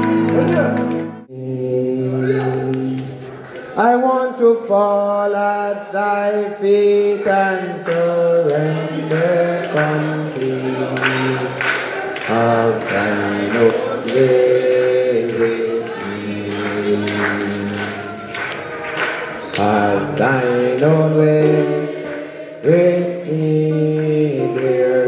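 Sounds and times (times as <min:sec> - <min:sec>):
congregation singing a hymn: 0:01.2 - 0:25.0
man singing through microphone: 0:01.3 - 0:18.5, 0:19.4 - 0:25.0.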